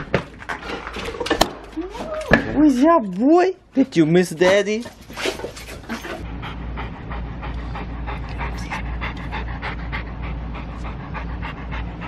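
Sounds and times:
dog panting quickly: 5.0s - 12.0s
steady low rumble: 6.2s - 12.0s.

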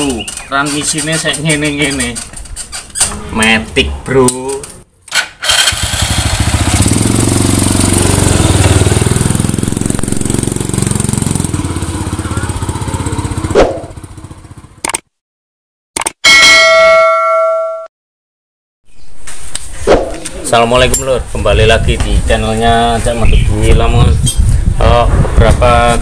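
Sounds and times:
scooter engine pulling away: 5.4s - 14.8s
bell-like chime: 16.3s - 17.9s.

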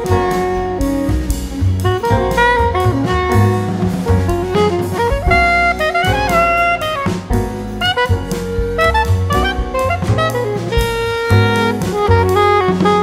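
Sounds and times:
bass: 0.0s - 13.0s
drum kit: 0.0s - 13.0s
saxophone melody: 0.0s - 13.0s.

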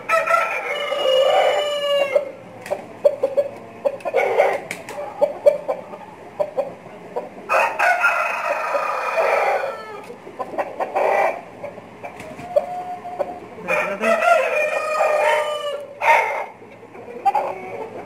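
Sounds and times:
rooster crowing: 0.0s - 2.4s, 7.5s - 10.0s, 12.4s - 16.6s
chickens clucking: 0.0s - 18.0s.

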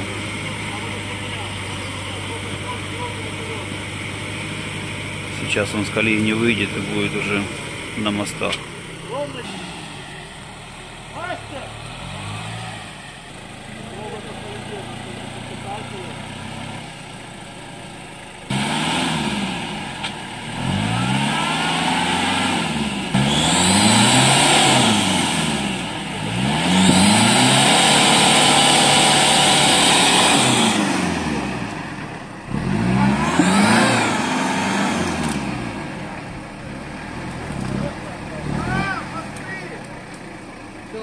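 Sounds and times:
engine revving hard: 0.0s - 13.2s, 18.5s - 39.8s
tyres churning mud: 18.5s - 41.0s.

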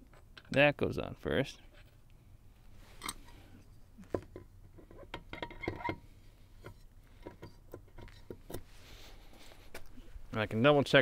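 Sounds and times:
hard parts clicking and knocking: 4.1s - 8.7s.

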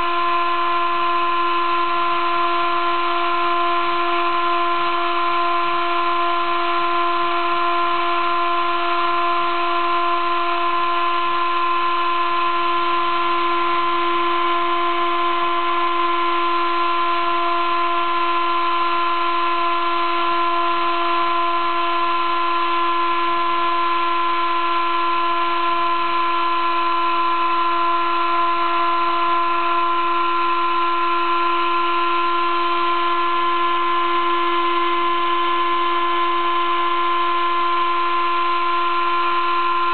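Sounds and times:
cnc mill high whine: 0.0s - 39.9s.

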